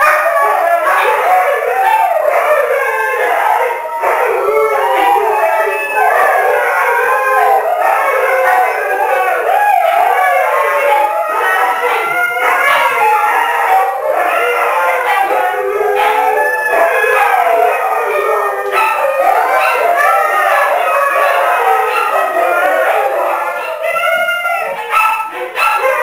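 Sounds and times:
dogs howling together: 0.0 - 26.0.

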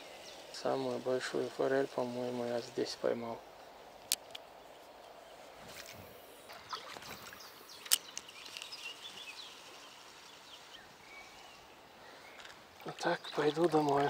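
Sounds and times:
river flowing: 0.0 - 14.0.

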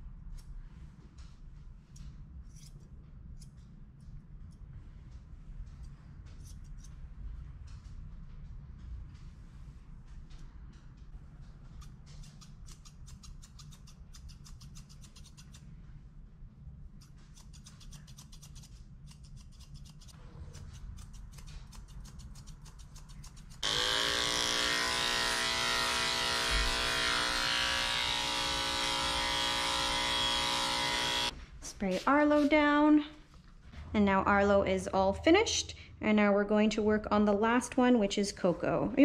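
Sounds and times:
scissors snipping hair: 11.8 - 15.6, 17.0 - 23.7
electric clippers buzzing: 23.6 - 31.4.

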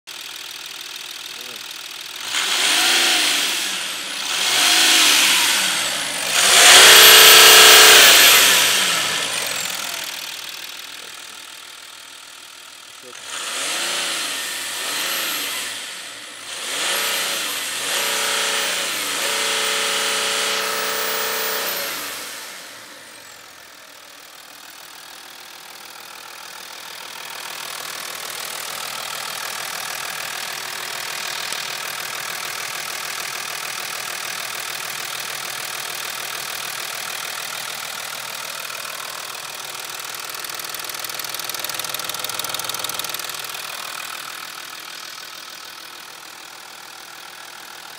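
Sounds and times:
diesel engine revving and idling: 0.1 - 47.9
high turbo whistle: 2.4 - 10.0.

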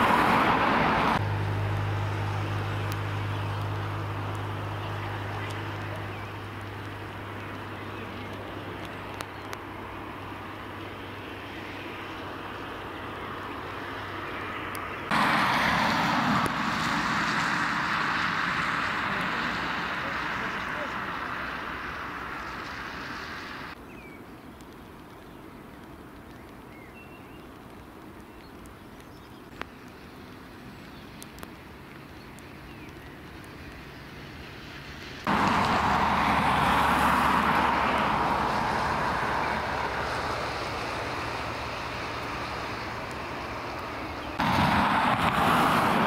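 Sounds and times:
stormy wind roaring: 0.0 - 23.8, 35.3 - 46.0.

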